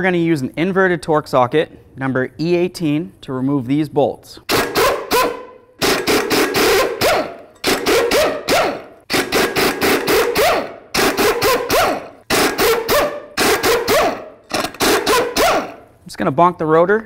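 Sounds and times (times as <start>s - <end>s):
air impact wrench hammering: 4.5s - 15.9s.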